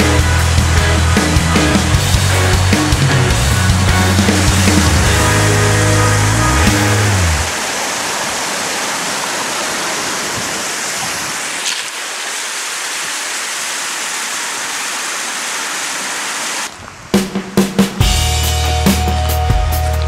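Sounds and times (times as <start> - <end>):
stream rushing over rocks: 1.8 - 17.1.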